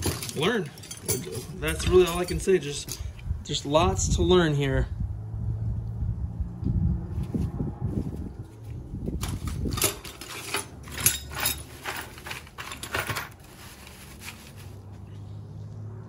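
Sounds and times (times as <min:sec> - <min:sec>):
metal tools clinking in toolbox: 0:00.0 - 0:03.2, 0:09.2 - 0:14.7.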